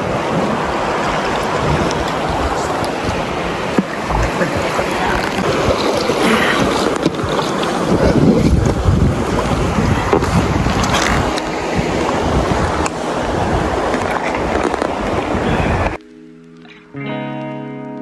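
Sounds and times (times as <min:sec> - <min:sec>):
wind buffeting microphone: 0:00.0 - 0:16.0
river water rushing: 0:00.0 - 0:17.0.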